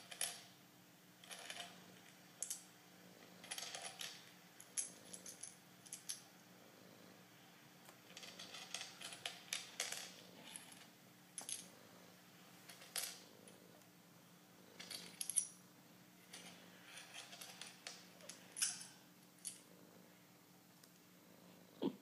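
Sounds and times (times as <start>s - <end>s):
faint steady hum: 0.0s - 22.0s
coins clinking: 16.3s - 19.6s.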